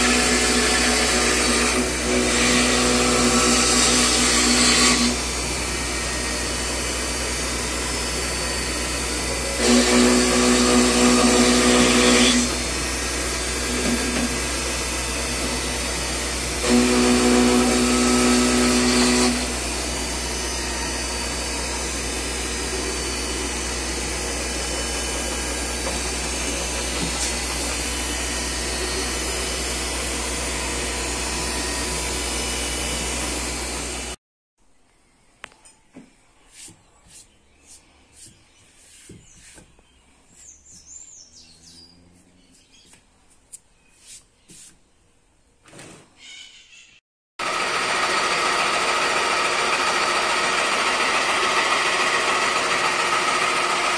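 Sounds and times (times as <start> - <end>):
milling spindle cutting wood: 0.0 - 34.2, 47.4 - 53.9.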